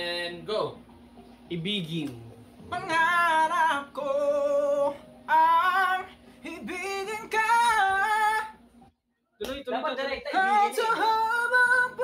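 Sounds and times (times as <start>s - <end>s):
man singing in high voice: 2.6s - 8.6s, 10.1s - 12.0s.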